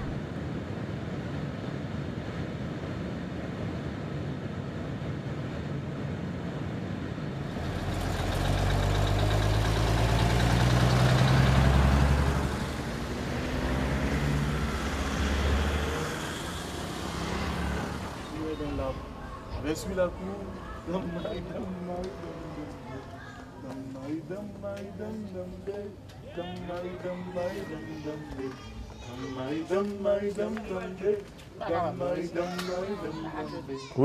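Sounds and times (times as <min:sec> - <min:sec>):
vehicle engine rumbling: 0:00.0 - 0:00.2, 0:07.4 - 0:28.0.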